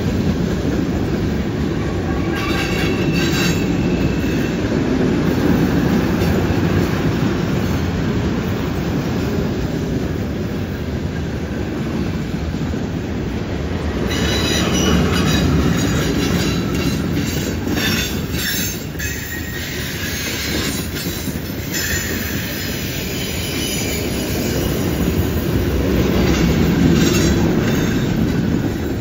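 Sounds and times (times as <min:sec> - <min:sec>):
freight cars rumbling on rails: 0:00.0 - 0:29.0
high-pitched wheel squeal: 0:14.1 - 0:25.1.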